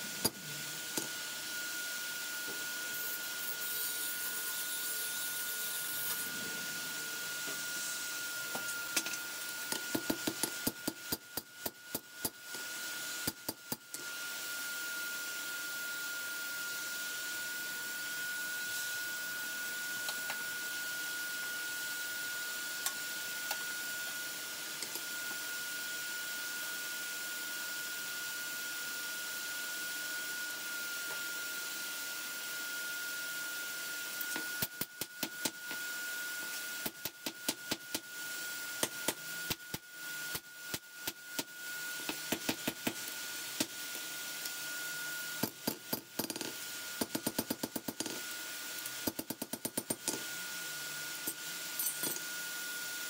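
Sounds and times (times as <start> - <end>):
thin high whine: 0.0 - 9.6.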